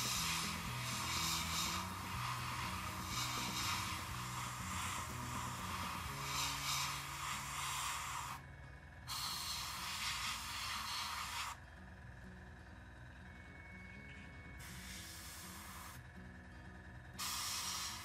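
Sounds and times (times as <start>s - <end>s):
airbrush spraying hiss: 0.0s - 8.4s, 9.1s - 11.6s, 14.6s - 16.0s, 17.2s - 18.0s.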